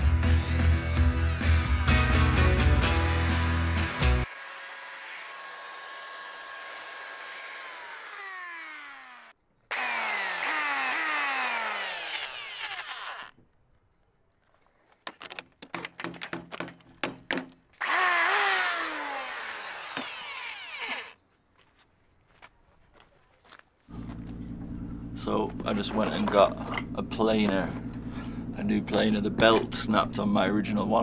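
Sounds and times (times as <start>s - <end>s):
electric planer cutting wood: 3.3s - 13.3s, 17.8s - 21.2s
sharp clicks and knocks: 15.0s - 17.6s.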